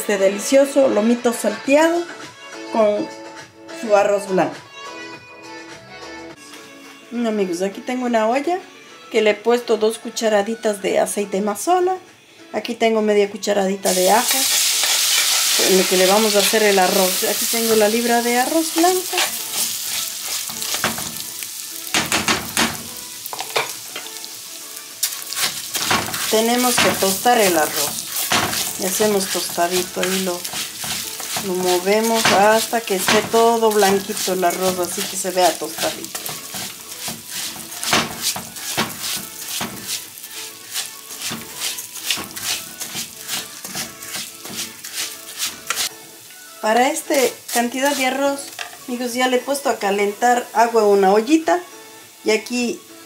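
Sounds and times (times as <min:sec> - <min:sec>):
rice sizzling in hot oil: 0:13.9 - 0:52.8
spoon scraping metal pot: 0:14.2 - 0:16.7, 0:18.7 - 0:21.0, 0:25.0 - 0:45.9, 0:47.2 - 0:48.8.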